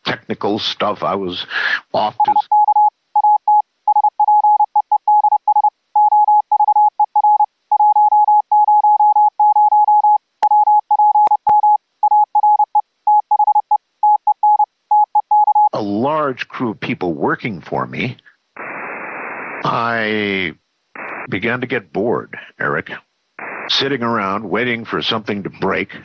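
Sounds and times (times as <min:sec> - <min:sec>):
morse code tone: 0:02.2 - 0:15.7.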